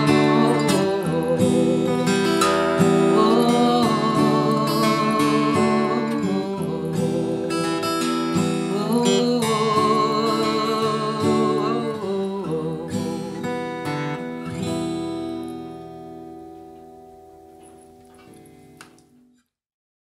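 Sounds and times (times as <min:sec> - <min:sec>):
woman singing: 0:00.0 - 0:14.3
acoustic guitar strumming: 0:00.0 - 0:19.3.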